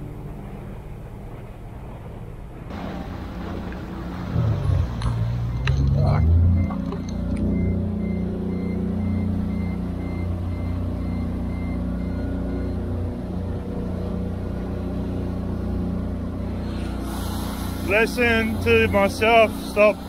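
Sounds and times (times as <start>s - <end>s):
outboard motor running: 0.0s - 20.0s
water rushing along hull: 0.0s - 20.0s
short electronic beeps: 5.5s - 12.9s.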